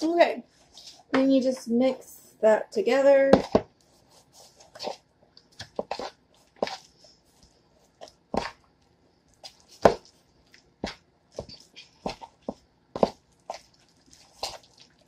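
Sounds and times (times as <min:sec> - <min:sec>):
spoon stirring thick mixture in bowl: 0:03.3 - 0:15.0.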